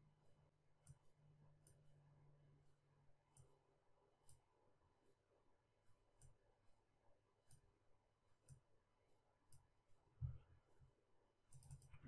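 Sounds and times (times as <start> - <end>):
computer mouse clicks: 11.5 - 12.0.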